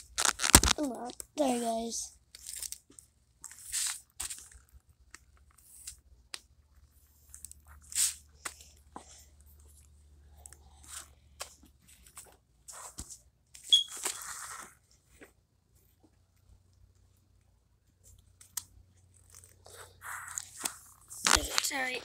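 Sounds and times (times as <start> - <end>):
paper crumpling and tearing: 0.0 - 0.9, 19.2 - 22.0.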